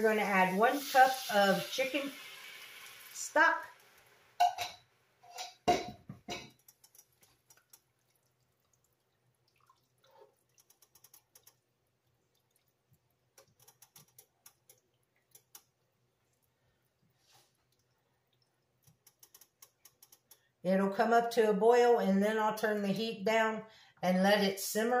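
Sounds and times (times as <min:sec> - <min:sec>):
liquid sloshing: 0:06.7 - 0:15.4.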